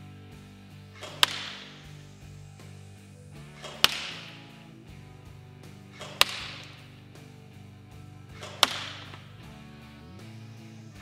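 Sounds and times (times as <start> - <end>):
background music: 0.0 - 11.0
airsoft rifle shots: 1.0 - 2.1, 3.4 - 4.8, 5.8 - 7.0, 8.3 - 9.4.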